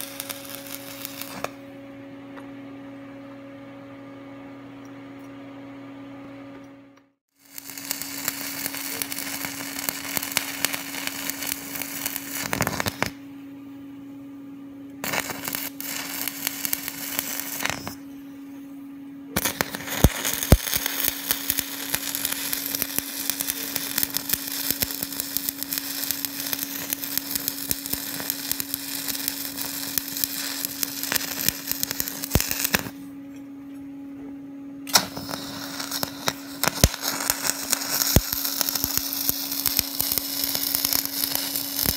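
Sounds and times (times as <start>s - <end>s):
welding arc crackling: 0.0s - 1.6s, 7.3s - 13.2s, 15.0s - 18.0s, 19.3s - 33.0s, 34.9s - 41.9s
steady hum: 0.0s - 41.9s.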